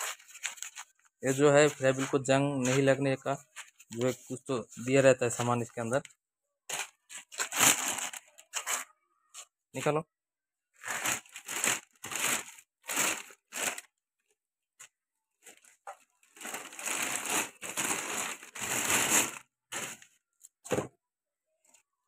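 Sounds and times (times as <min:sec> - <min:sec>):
plastic bag crinkling: 0:06.7 - 0:08.9, 0:10.8 - 0:14.0, 0:15.4 - 0:20.2.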